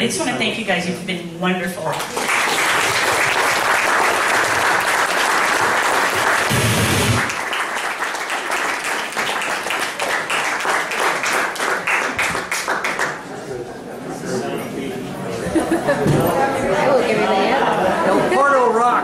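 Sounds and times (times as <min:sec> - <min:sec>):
audience applauding: 0:01.9 - 0:13.4.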